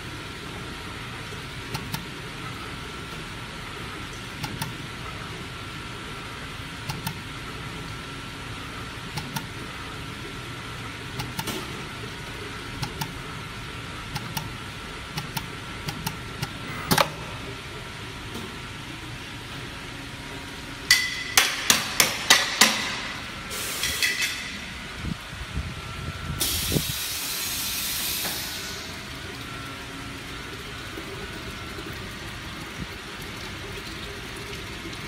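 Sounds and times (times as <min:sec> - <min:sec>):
machine humming and whining: 0:00.0 - 0:21.2, 0:21.9 - 0:35.0
pneumatic dispensing heads clicking: 0:15.2 - 0:17.2
hiss-like burst: 0:26.4 - 0:28.7.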